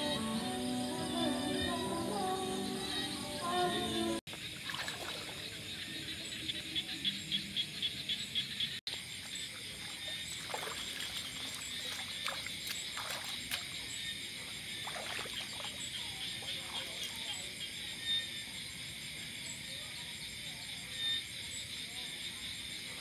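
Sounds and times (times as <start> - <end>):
frog pulsed call: 0.0 - 4.2
insects buzzing: 0.0 - 19.1.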